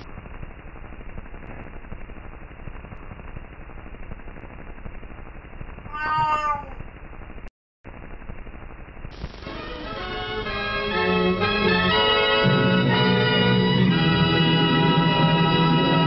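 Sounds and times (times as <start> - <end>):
film soundtrack hiss and crackle: 0.0 - 16.0
short high meow-like call: 5.9 - 6.8.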